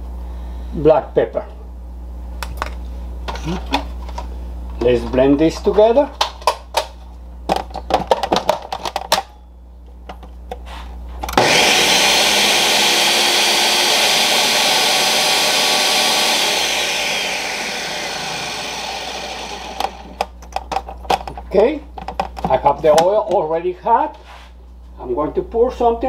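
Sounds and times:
blender running: 11.3 - 20.4.

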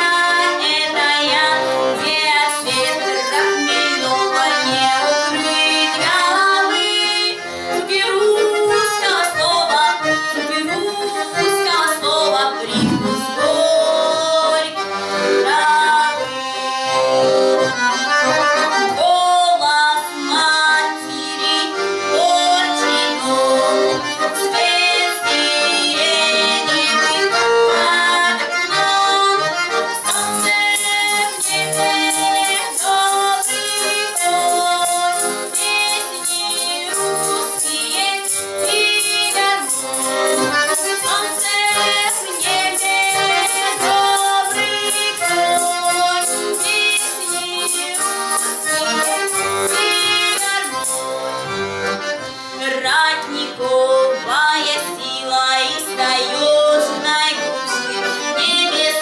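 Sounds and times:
woman singing folk song: 0.0 - 16.8, 18.7 - 23.7, 24.3 - 50.9, 52.6 - 59.0
accordion: 0.0 - 59.0
tambourine jingles: 30.0 - 51.4.

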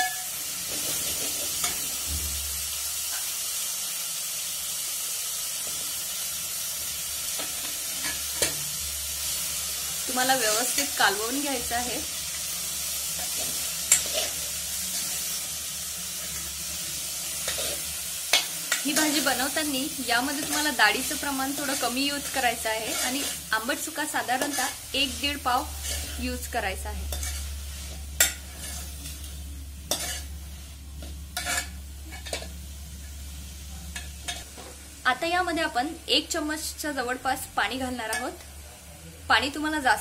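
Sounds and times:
frying sizzle in oil: 0.0 - 40.0
metal spatula stirring in pot: 13.1 - 15.4, 16.2 - 32.6
metal spoon scraping a pot: 13.2 - 14.4, 21.7 - 23.5, 25.7 - 26.4, 27.0 - 29.3, 29.9 - 30.4, 31.0 - 32.5.

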